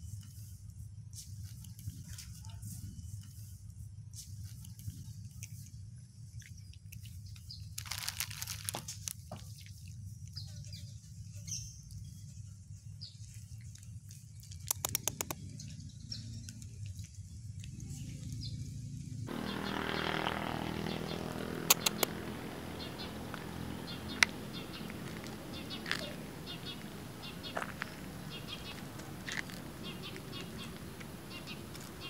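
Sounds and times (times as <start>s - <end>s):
cat crunching dry kibble: 6.4s - 9.9s, 13.7s - 15.5s, 21.2s - 32.0s
plastic bag crinkling: 7.8s - 9.2s
steady low rumble: 15.0s - 32.0s.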